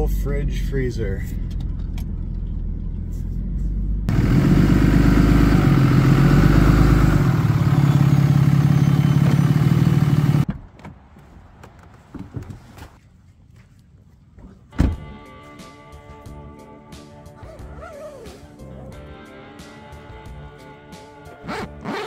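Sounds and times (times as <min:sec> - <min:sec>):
motor vehicle running: 0:00.0 - 0:11.1.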